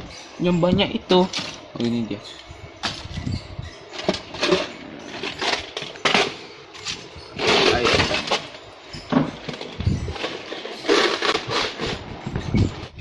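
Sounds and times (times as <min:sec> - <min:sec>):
plastic boxes clattering: 0:03.9 - 0:12.1.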